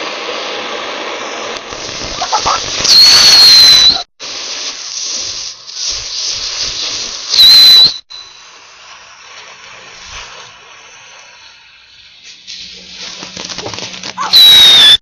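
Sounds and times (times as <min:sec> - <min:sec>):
fireworks hissing: 0:00.0 - 0:15.0
shrill firework whistle: 0:01.7 - 0:04.1, 0:05.8 - 0:09.1, 0:10.1 - 0:15.0.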